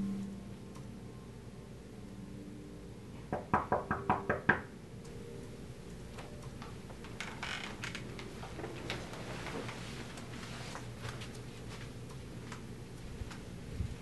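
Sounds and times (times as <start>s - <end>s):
knocking on a door: 3.3s - 4.7s.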